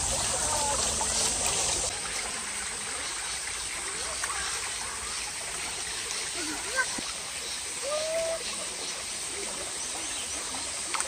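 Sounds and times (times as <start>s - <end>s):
stream rushing over rocks: 0.0s - 11.0s.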